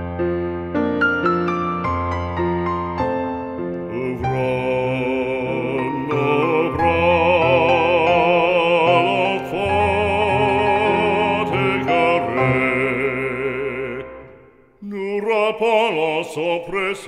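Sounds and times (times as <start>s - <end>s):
orchestral backing: 0.0s - 14.5s
operatic voice with vibrato: 3.9s - 17.0s.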